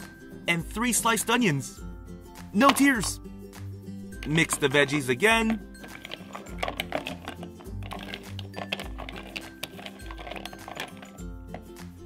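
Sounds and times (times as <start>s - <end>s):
background music: 0.0s - 12.0s
plastic toys clattering: 4.2s - 11.7s.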